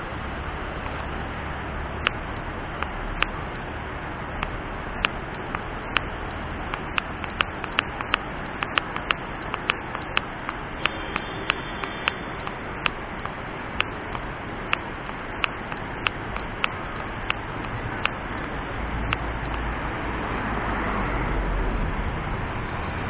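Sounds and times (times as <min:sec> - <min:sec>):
fast mountain river rushing: 0:00.0 - 0:23.0
sharp clicks: 0:04.4 - 0:19.7.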